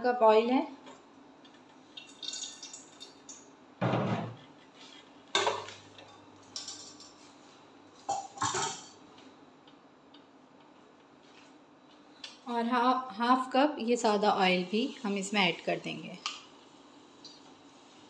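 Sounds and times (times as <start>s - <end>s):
metal kitchenware clinking: 5.4s - 7.2s, 8.1s - 9.0s.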